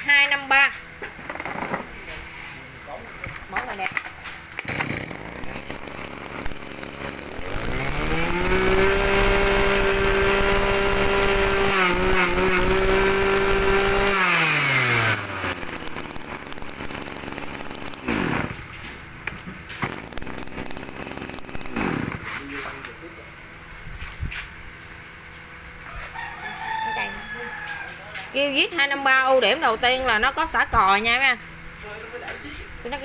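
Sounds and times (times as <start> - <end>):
brush cutter engine revving: 4.6 - 18.8, 19.8 - 22.7.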